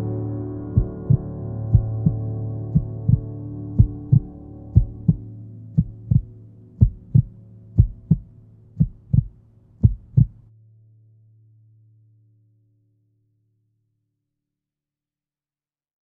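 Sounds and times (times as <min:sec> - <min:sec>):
low steady drone: 0:00.0 - 0:10.5
heartbeat double thumps: 0:00.8 - 0:05.2, 0:05.8 - 0:10.4.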